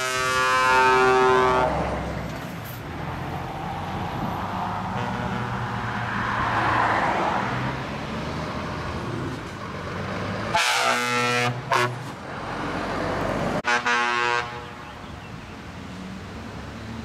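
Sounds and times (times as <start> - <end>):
truck air horn blast: 0.0 - 2.0, 4.9 - 5.8, 10.5 - 12.1, 13.6 - 14.8
passing vehicle engine and tyres: 0.0 - 17.0.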